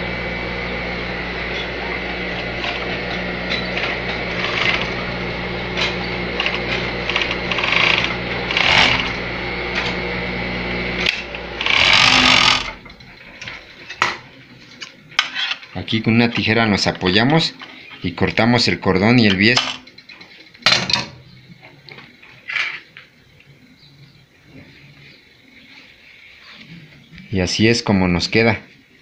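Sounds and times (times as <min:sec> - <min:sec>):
sewing machine running: 0:02.3 - 0:10.0, 0:11.0 - 0:13.2.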